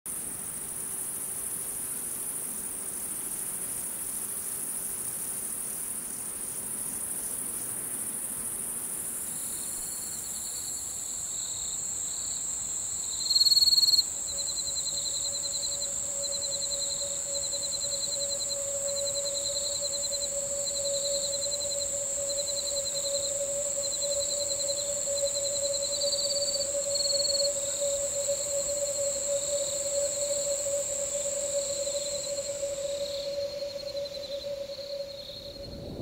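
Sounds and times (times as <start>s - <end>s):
insects chirping high-pitched: 0.1s - 36.0s
steady low tone: 27.7s - 36.0s.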